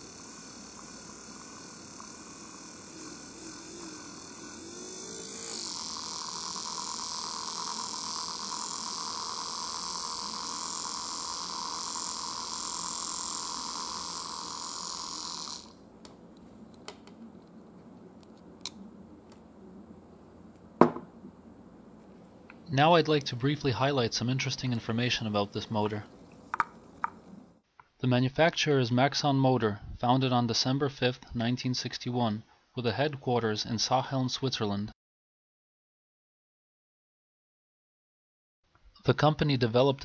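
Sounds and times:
electric motor whine: 0.0 - 15.9.

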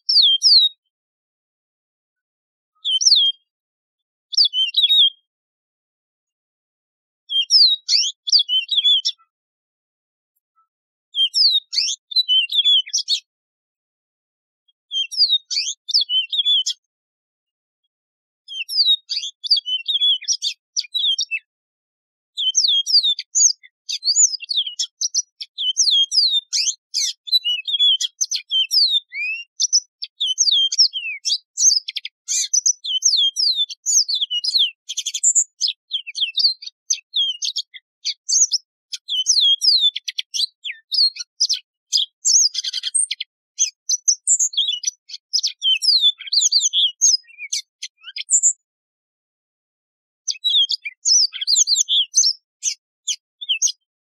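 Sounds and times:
canary singing twittering song: 0.0 - 0.9, 2.7 - 3.6, 4.3 - 5.3, 7.2 - 9.3, 11.1 - 13.3, 14.7 - 16.9, 18.4 - 21.5, 22.3 - 48.7, 50.2 - 53.9.

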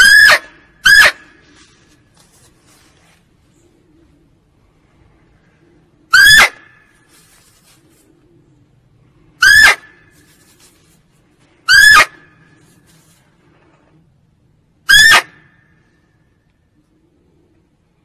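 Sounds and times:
deer barking: 0.0 - 1.4, 11.7 - 12.2, 14.9 - 15.4.

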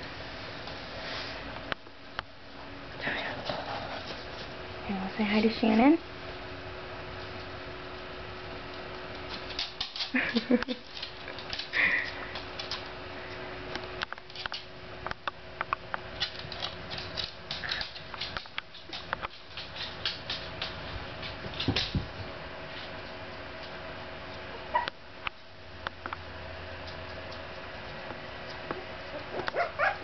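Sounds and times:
faint steady hum: 0.0 - 30.0
puppy claws clicking on floor: 8.4 - 24.4, 25.3 - 30.0.

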